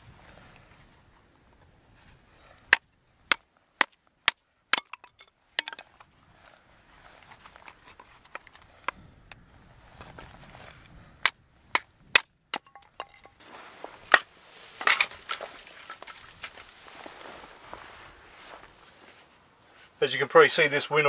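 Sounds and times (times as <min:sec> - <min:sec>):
hatchet chopping wood: 0:02.7 - 0:05.9, 0:11.2 - 0:13.3
split wood pieces clattering: 0:04.7 - 0:06.1, 0:07.4 - 0:08.9, 0:11.7 - 0:16.7.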